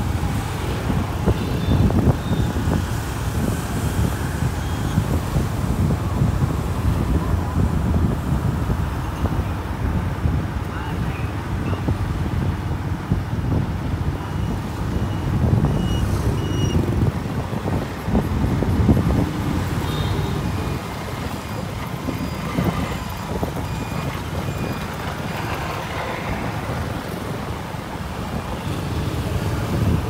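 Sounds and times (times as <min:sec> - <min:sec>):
motorbike and car traffic: 0:00.0 - 0:30.0
wind rumble on microphone: 0:00.0 - 0:30.0.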